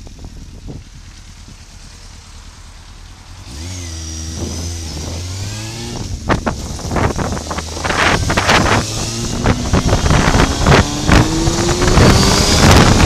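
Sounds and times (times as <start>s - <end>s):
motorcycle engine accelerating: 0.0s - 13.0s
wind buffeting microphone: 3.5s - 13.0s.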